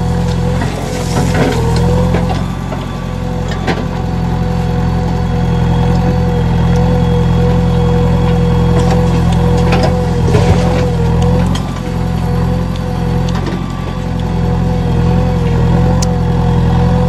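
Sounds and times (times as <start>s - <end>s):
diesel engine running: 0.0s - 17.0s
hydraulic whine: 0.0s - 17.0s
soil and stones dropping: 8.8s - 12.2s.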